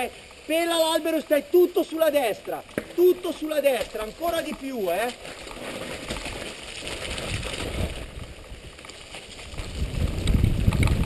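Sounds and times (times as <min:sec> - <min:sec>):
bike tyres on dirt trail: 0:00.0 - 0:11.0
wind rumble on microphone: 0:06.9 - 0:11.0.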